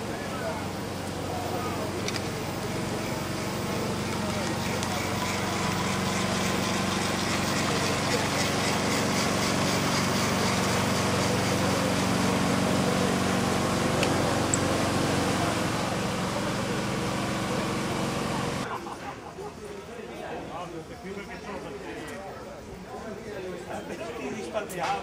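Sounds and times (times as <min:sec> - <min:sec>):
model locomotive motors humming: 0:00.0 - 0:18.7.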